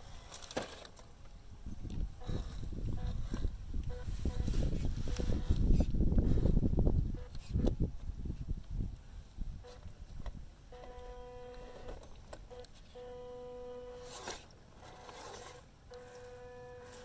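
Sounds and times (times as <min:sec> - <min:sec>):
small electric motor whining: 0:02.0 - 0:07.8, 0:10.7 - 0:17.0.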